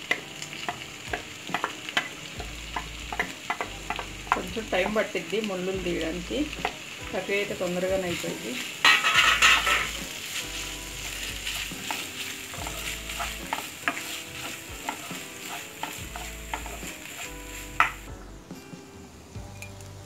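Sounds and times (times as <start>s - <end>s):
spatula tapping on a pan: 0.0s - 5.0s, 6.6s - 6.8s, 11.5s - 18.1s
food sizzling in a frying pan: 0.0s - 20.0s
wooden spatula scraping a pan: 8.4s - 18.1s.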